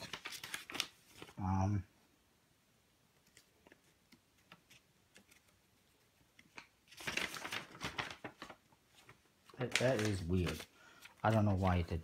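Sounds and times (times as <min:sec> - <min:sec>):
packaging rustling: 0:00.0 - 0:01.4, 0:06.5 - 0:12.0.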